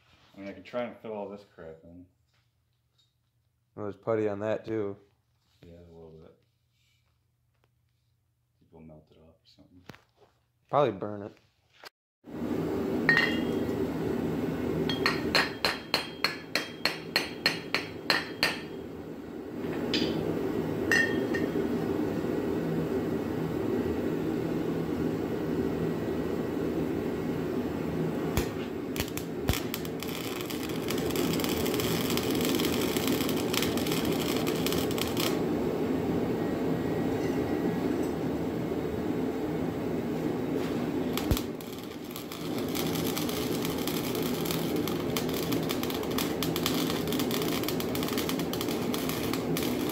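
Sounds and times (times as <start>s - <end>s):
steady background hum: 12.3s - 49.9s
hammer striking metal pipe: 13.1s - 13.6s, 14.9s - 18.8s, 20.9s - 21.5s.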